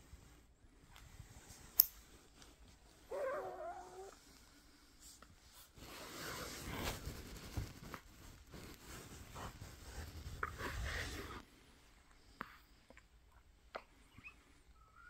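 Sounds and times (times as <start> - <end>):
cloth rustling: 1.0 - 11.4.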